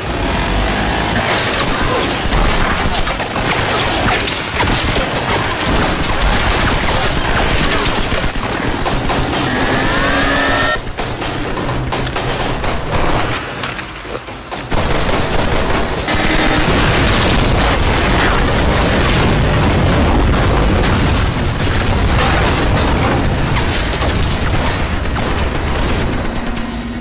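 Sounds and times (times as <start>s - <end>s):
gunfire: 1.4s - 13.5s, 14.2s - 26.8s
explosions: 14.7s - 26.4s.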